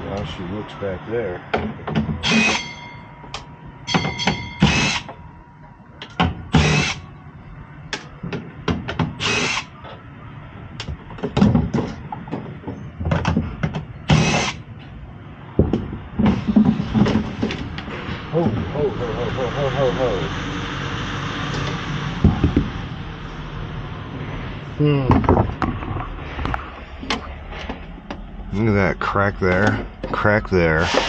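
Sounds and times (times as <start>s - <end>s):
power driver spinning screws: 9.2s - 9.7s.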